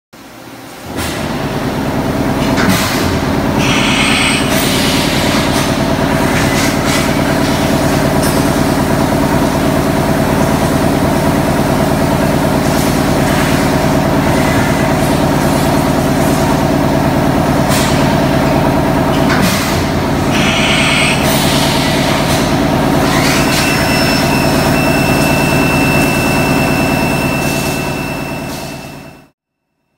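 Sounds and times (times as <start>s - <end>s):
milling machine drone with hiss: 2.9s - 8.3s, 20.0s - 25.9s
thin high whine: 23.0s - 29.4s.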